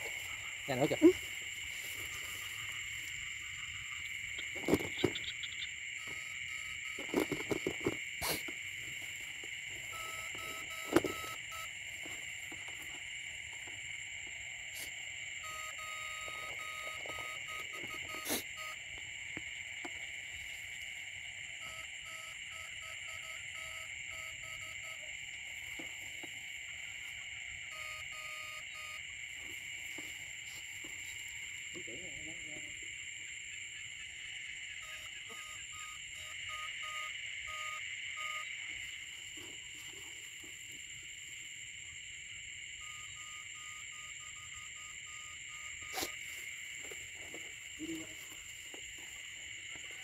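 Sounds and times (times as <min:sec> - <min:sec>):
footsteps rustling in grass: 0:00.0 - 0:03.6
low pulsing frog call: 0:00.0 - 0:11.8, 0:14.4 - 0:30.0, 0:31.7 - 0:39.4, 0:41.8 - 0:50.0
frogs and insects calling: 0:00.0 - 0:50.0.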